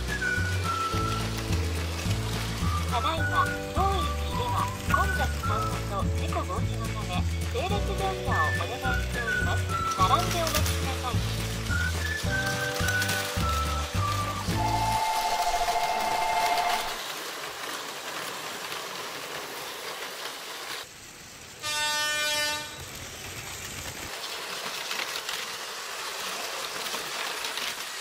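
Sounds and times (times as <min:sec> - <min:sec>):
toy trains running on plastic track: 0:00.0 - 0:28.0
toy train horn: 0:11.9 - 0:17.0, 0:21.6 - 0:23.0.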